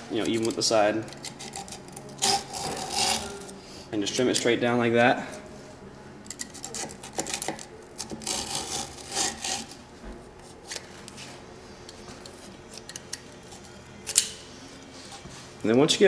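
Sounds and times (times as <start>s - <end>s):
knife rasping on grip tape: 1.2s - 3.6s, 6.4s - 9.8s.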